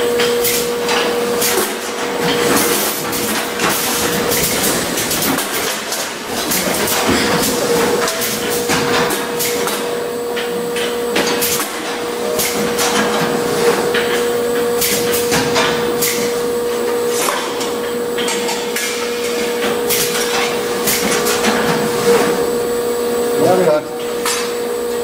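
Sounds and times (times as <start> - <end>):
steady machine hum: 0.0 - 25.0
machine clacks: 0.2 - 16.4.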